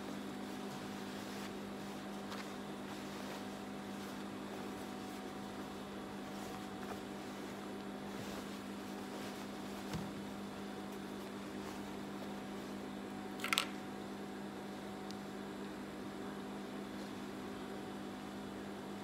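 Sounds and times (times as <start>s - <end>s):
steady electric hum: 0.0s - 19.0s
denim rustling: 0.2s - 13.0s.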